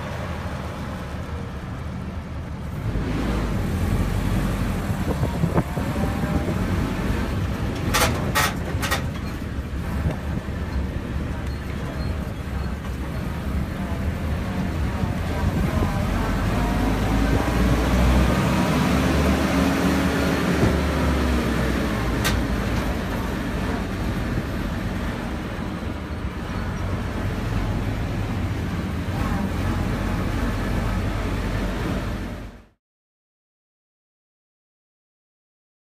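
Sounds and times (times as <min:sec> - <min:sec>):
jeep engine drone: 0:00.0 - 0:32.7
wind and road rumble: 0:00.0 - 0:32.8.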